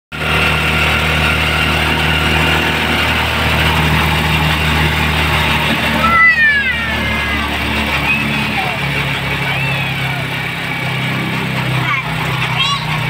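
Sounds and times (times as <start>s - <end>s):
motorcycle engine running: 0.1s - 13.0s
child calling out: 5.8s - 10.4s.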